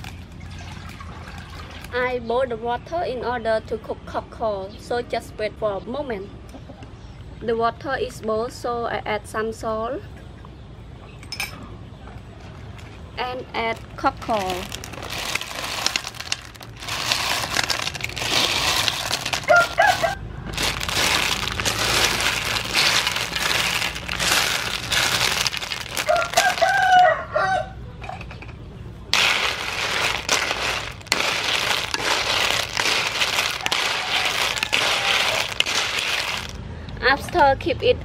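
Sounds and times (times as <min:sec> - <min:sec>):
shells clattering in a metal wok: 0:14.4 - 0:26.7, 0:29.1 - 0:36.6
rooster crowing: 0:19.5 - 0:20.2, 0:26.0 - 0:27.8.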